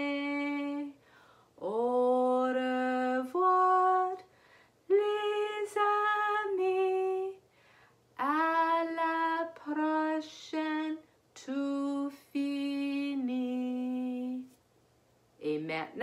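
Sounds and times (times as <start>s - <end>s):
woman singing unaccompanied: 0.0s - 1.0s, 1.6s - 4.3s, 4.9s - 7.4s, 8.2s - 14.5s.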